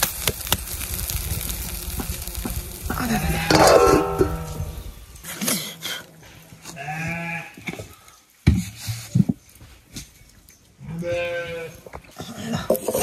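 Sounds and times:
goat bleating: 2.2s - 4.6s, 6.7s - 7.6s.

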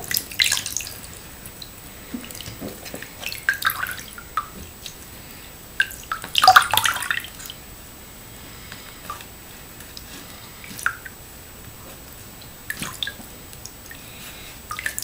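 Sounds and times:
water dripping into a sink: 0.0s - 5.0s, 5.8s - 7.6s, 9.9s - 11.2s, 12.4s - 14.0s, 14.7s - 15.0s.

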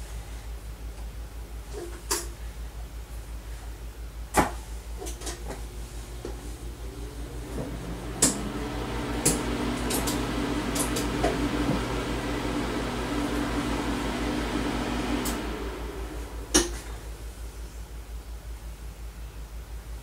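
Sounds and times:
curing light humming: 4.8s - 18.2s.

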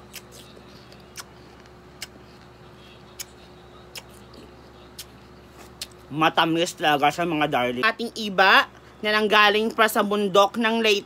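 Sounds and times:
wet chewing clicks: 0.0s - 2.5s, 3.2s - 6.0s
faint hum: 0.0s - 11.0s.

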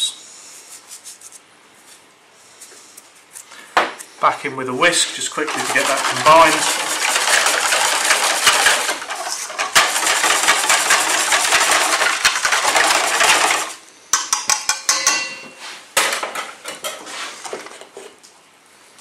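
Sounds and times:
whisk beating batter in bowl: 5.0s - 13.8s
knocks and clinks against bowl: 14.2s - 15.6s.

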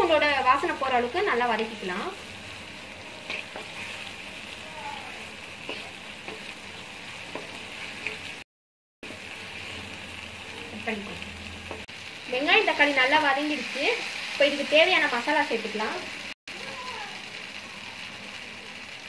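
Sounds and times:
food sizzling in oil: 0.0s - 19.0s
wooden spatula scraping pan: 3.2s - 4.2s.

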